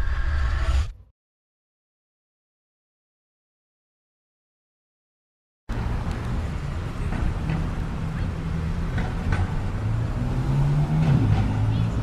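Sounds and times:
street ambience: 5.7s - 12.0s
vehicle engine humming: 5.7s - 12.0s.

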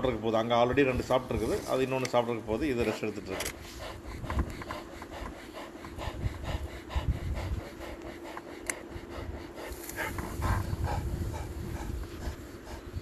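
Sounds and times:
cheetah panting: 0.0s - 13.0s.

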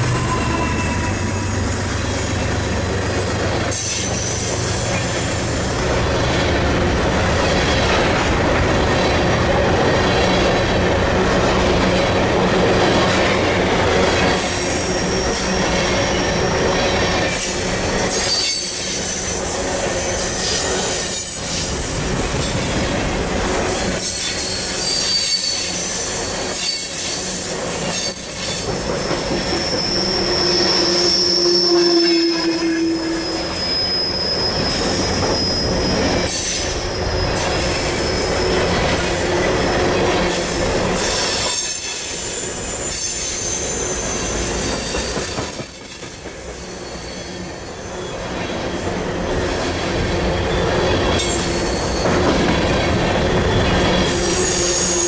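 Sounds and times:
train wheels rumbling on rails: 0.0s - 55.0s
wheel squeal: 24.0s - 27.2s, 27.8s - 40.3s.

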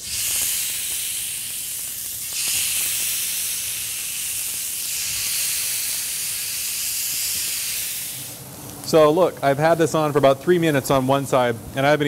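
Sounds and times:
fish sizzling on grill pan: 0.0s - 8.4s.

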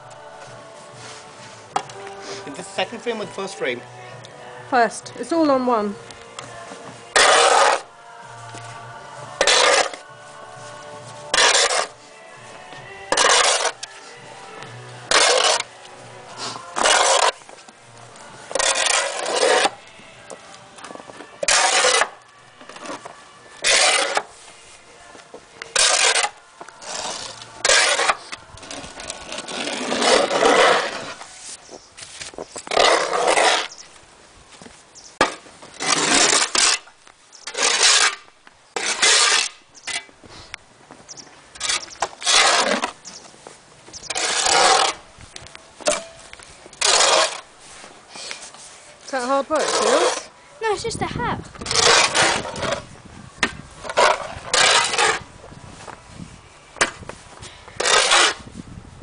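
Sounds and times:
snow shovel scraping snow: 7.1s - 17.5s, 18.4s - 19.8s, 21.4s - 22.2s, 22.9s - 24.9s, 25.7s - 33.9s, 35.2s - 40.5s, 41.6s - 45.1s, 46.8s - 51.0s, 51.6s - 56.4s, 57.0s - 58.6s.

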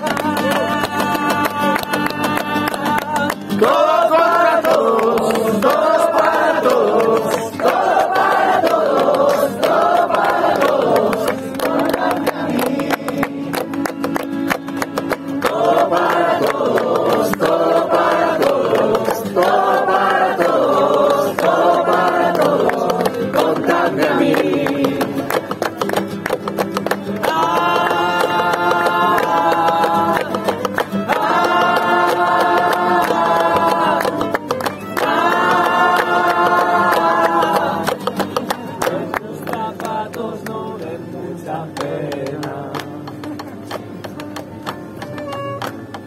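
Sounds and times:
person singing: 0.0s - 7.6s, 27.2s - 43.4s
acoustic guitar strumming: 0.0s - 46.0s
crowd clapping along: 0.0s - 46.0s
violin: 8.0s - 24.6s, 26.8s - 38.9s, 43.3s - 46.0s.

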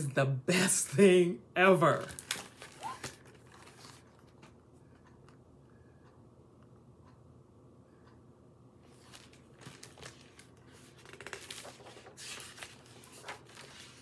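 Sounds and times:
paper pages rustling: 2.0s - 4.6s, 8.9s - 14.0s.

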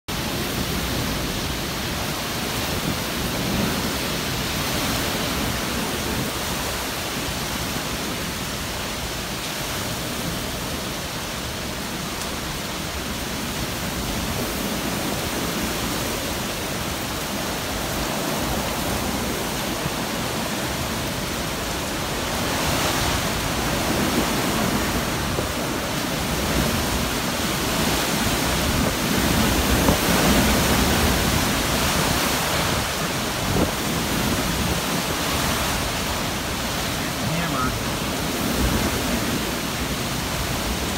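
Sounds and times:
strong wind rushing through trees: 0.1s - 40.9s.

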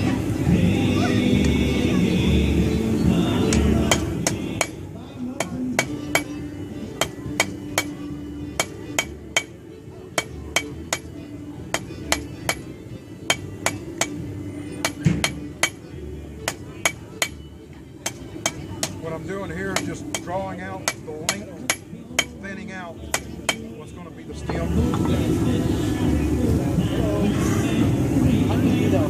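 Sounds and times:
hammer striking metal on anvil: 3.9s - 4.8s, 5.4s - 6.4s, 7.0s - 8.0s, 8.6s - 9.6s, 10.2s - 12.7s, 13.3s - 14.2s, 14.8s - 17.4s, 18.0s - 19.1s, 19.7s - 22.4s, 23.1s - 23.7s.

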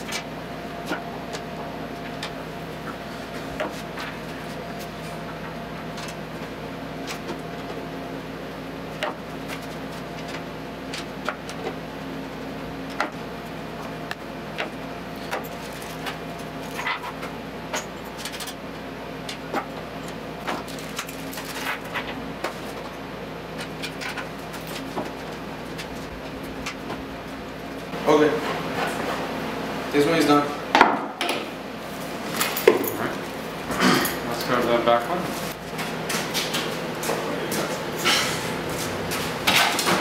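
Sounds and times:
electrical hum: 0.0s - 40.0s.

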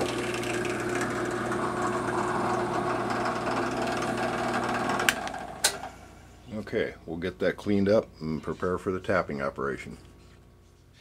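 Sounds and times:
drill boring into steel: 0.0s - 5.7s
drill press motor hum: 0.0s - 6.3s.

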